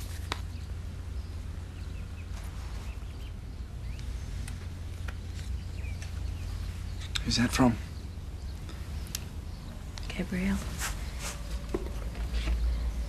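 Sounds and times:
paper card clicks and rustles: 0.0s - 0.5s.

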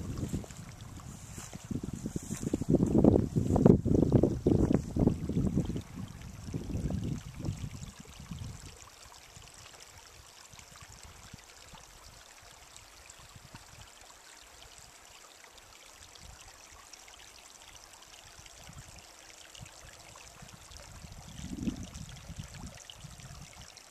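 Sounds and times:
wind buffeting microphone: 0.0s - 8.9s, 19.6s - 23.7s
stream trickling over rocks: 0.0s - 23.9s.

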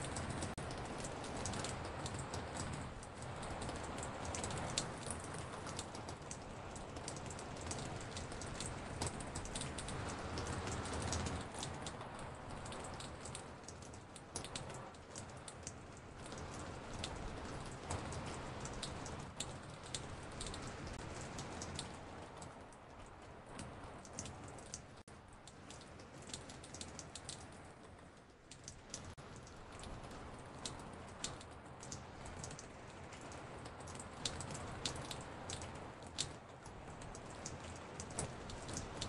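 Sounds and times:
raindrops dripping on porch: 0.0s - 39.0s
steady rain hiss: 0.0s - 39.0s.

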